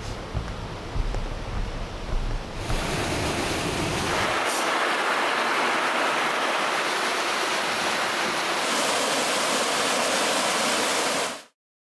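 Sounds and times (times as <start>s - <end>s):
stream rushing over rocks: 2.6s - 11.5s.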